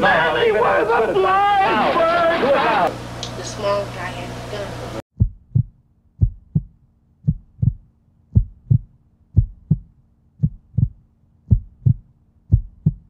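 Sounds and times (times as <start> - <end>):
heartbeat thumps: 5.1 - 13.0.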